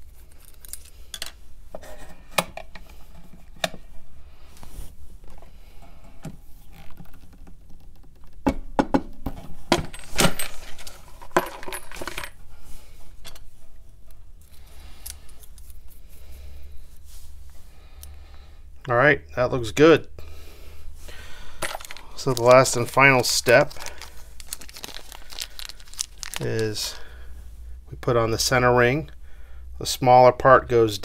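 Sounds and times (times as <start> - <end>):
metal parts clicking and clinking: 0.3 - 1.4, 9.8 - 12.4, 21.6 - 23.0.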